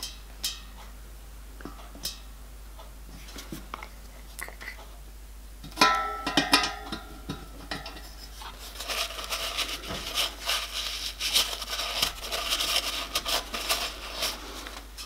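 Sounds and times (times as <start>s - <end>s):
metallic clinks on boiler: 5.7s - 8.0s
cloth rubbing on metal: 7.8s - 15.0s.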